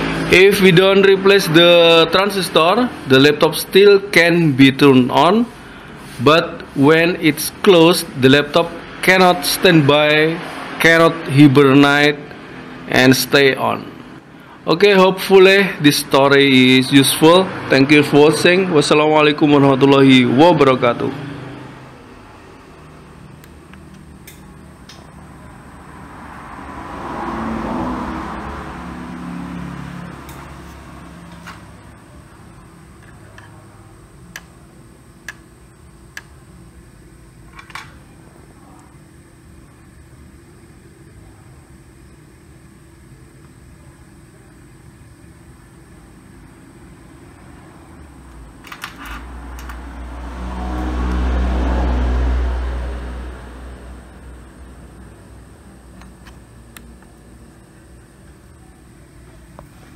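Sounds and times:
vehicle passing by: 0.0s - 2.2s, 8.7s - 14.3s, 17.0s - 24.2s, 25.1s - 32.0s, 49.2s - 55.6s
low whirring fan rumble: 0.0s - 59.9s.

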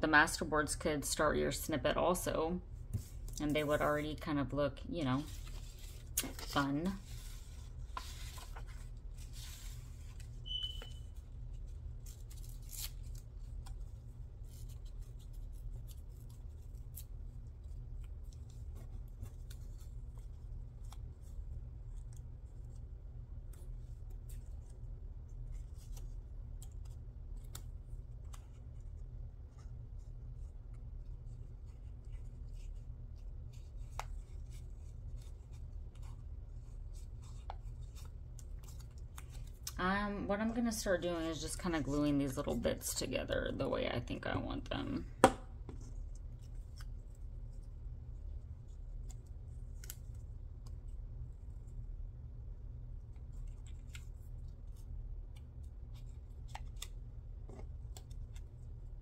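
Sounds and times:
steady low hum: 0.0s - 59.0s
paper rustling: 5.2s - 22.8s.

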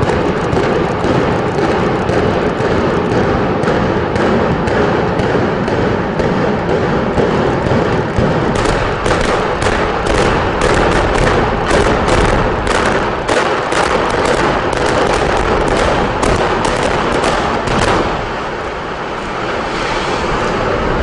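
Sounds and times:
building collapsing rumble: 14.5s - 21.0s.

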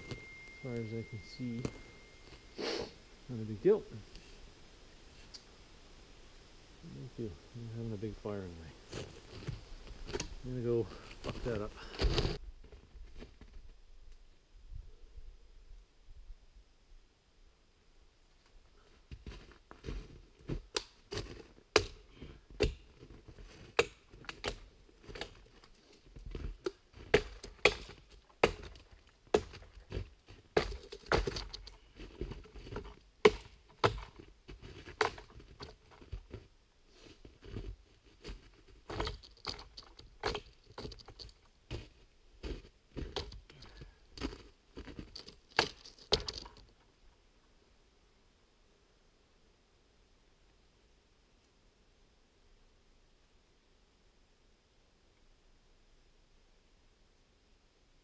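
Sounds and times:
hatchet chopping wood: 21.7s - 22.0s, 22.6s - 22.9s, 27.1s - 29.7s.

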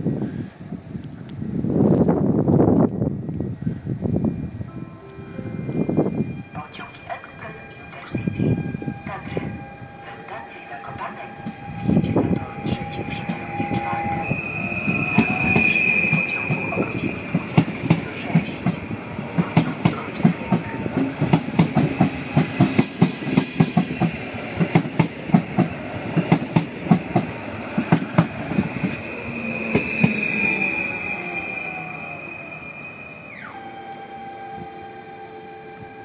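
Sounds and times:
electric train whine: 0.0s - 36.0s.

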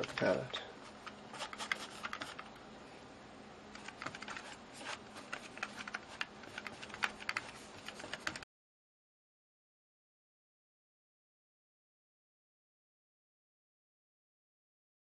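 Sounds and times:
brush scraping on canvas: 0.0s - 2.4s, 4.2s - 8.4s.

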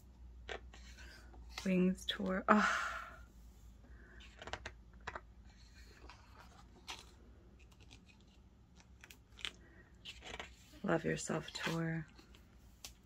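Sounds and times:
paper pages turning: 4.2s - 13.0s.

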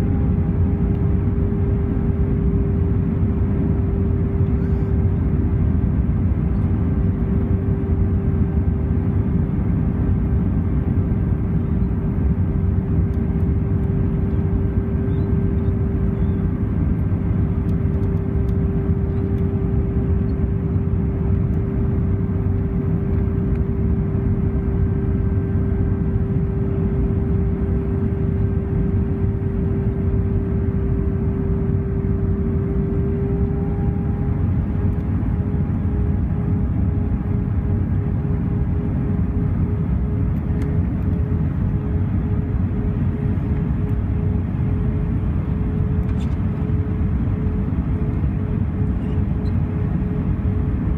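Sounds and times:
airflow rush in aircraft cabin: 0.0s - 50.9s
jet engine drone: 0.0s - 50.9s
steady hum: 0.0s - 50.9s.

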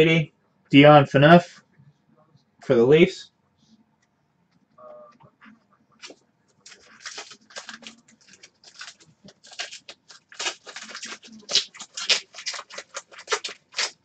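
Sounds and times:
card pack wrapper crinkling: 6.0s - 14.0s.

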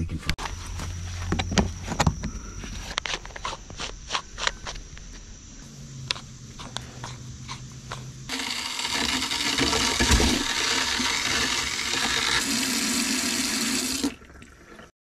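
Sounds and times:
faucet running into plastic sink: 8.3s - 14.7s.

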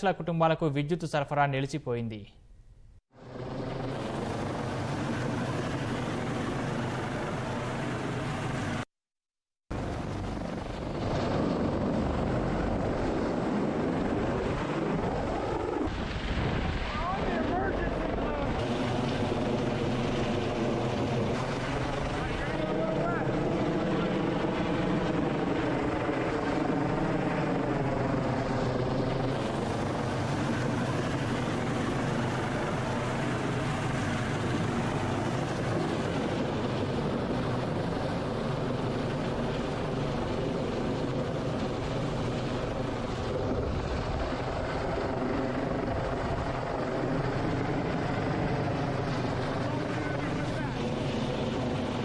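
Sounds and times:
helicopter rotor and engine: 3.1s - 8.9s, 9.7s - 52.0s.

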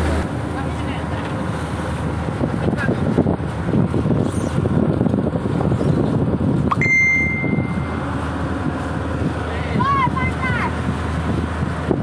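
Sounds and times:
boat machinery humming: 0.0s - 12.0s
wind on microphone: 1.4s - 12.0s
steady high-pitched tone: 6.7s - 8.1s.

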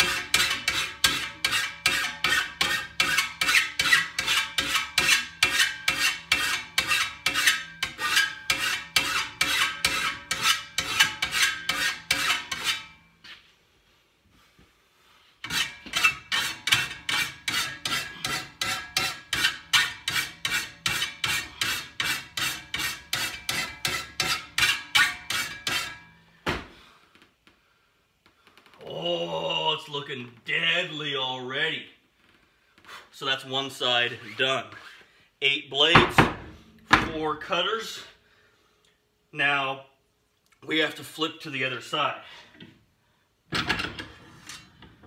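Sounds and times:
file rasping on metal blade: 0.0s - 13.0s, 15.4s - 26.1s.

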